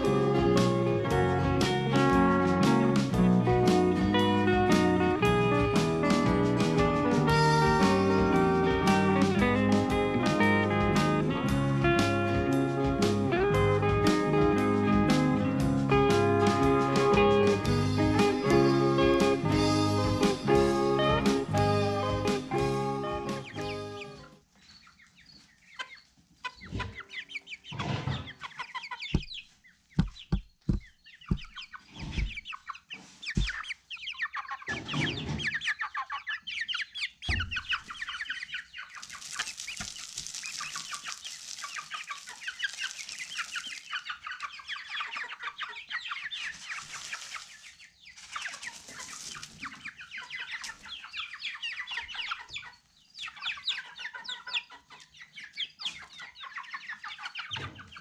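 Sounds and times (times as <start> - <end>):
chickens clucking: 0.0 - 58.0
dull knocks: 29.1 - 29.4
rustling hiss: 38.9 - 44.4, 46.4 - 49.8.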